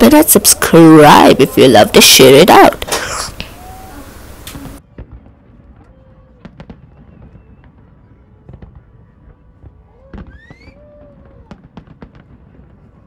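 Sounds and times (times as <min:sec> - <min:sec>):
fireworks bangs and crackles: 0:04.5 - 0:13.0.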